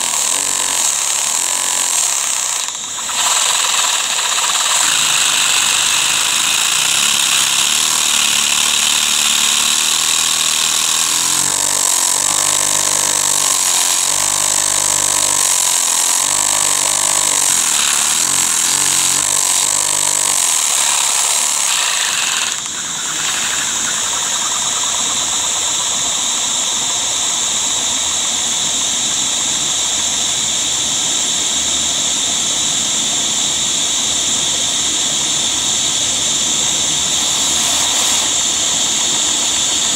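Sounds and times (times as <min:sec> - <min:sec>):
plastic mechanism pulsing beat: 0:00.0 - 0:27.1
vacuum cleaner whine: 0:00.0 - 0:39.9.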